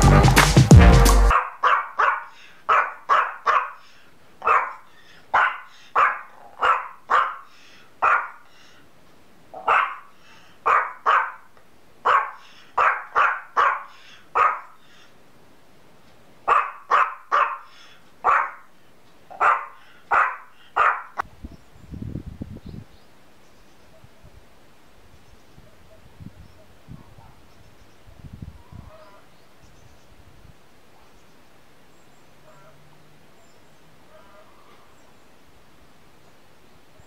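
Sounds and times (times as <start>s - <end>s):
small dog barking: 1.3s - 3.8s, 4.4s - 8.4s, 9.6s - 14.8s, 16.5s - 18.7s, 19.3s - 21.2s, 32.4s - 32.8s, 34.1s - 34.9s.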